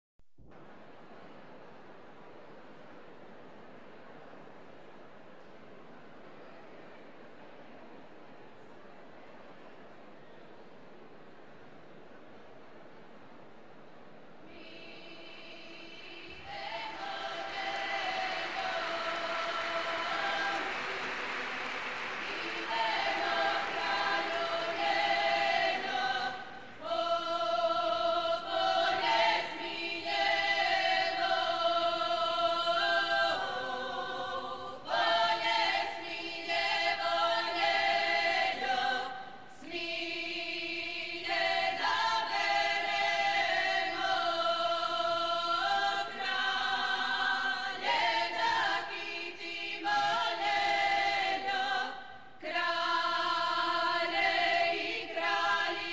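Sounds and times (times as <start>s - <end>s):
women singing unaccompanied: 14.5s - 21.4s, 22.0s - 55.9s.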